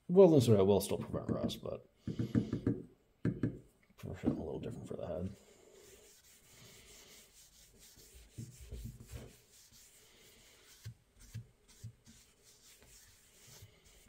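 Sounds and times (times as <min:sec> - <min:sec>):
paper towel wiping metal: 0:05.8 - 0:14.0.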